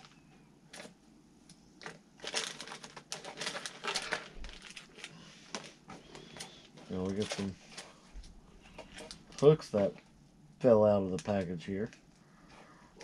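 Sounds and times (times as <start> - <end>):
plastic packaging crinkling: 1.8 - 7.8.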